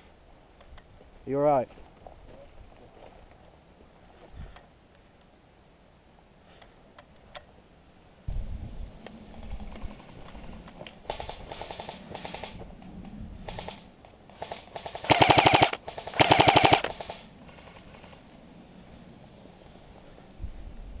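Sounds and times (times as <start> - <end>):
airsoft rifle firing bursts: 11.1 - 12.6, 13.4 - 13.8, 14.4 - 18.2.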